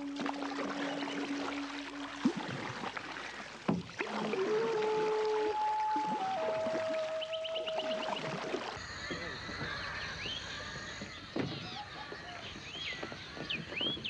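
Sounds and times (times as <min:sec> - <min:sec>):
birds chirping: 0:00.0 - 0:02.5, 0:06.4 - 0:14.0
kayak paddles splashing in water: 0:00.0 - 0:14.0.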